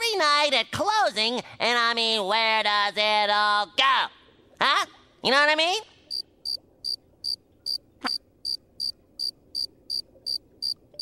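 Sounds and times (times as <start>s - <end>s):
cricket chirping: 6.1s - 11.0s.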